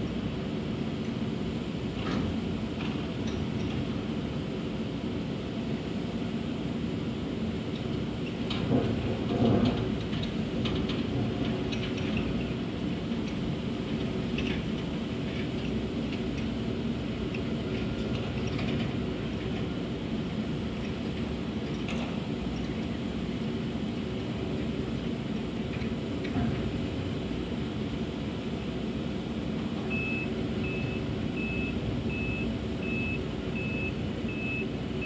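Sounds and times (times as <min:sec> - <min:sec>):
excavator diesel engine running: 0:00.1 - 0:35.0
faint clicks and clanks: 0:20.8 - 0:22.9.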